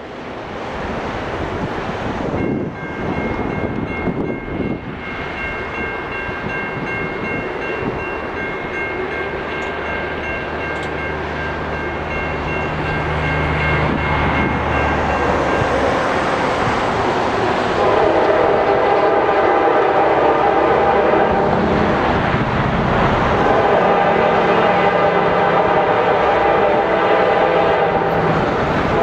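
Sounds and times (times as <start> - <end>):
diesel locomotive drone: 0.0 - 29.0
wind buffeting microphone: 0.8 - 10.2, 12.0 - 29.0
crossing bell ringing: 2.3 - 16.7.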